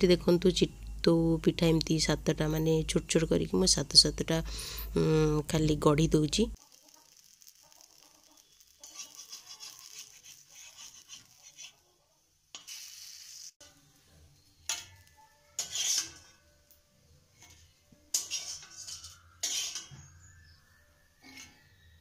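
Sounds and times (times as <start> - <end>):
pancakes hissing in pan: 6.6 - 14.0, 14.6 - 16.4, 17.4 - 20.1
metal spatula scraping metal pan: 8.8 - 11.8, 12.5 - 13.5, 14.6 - 16.6, 17.3 - 20.6, 21.2 - 22.0.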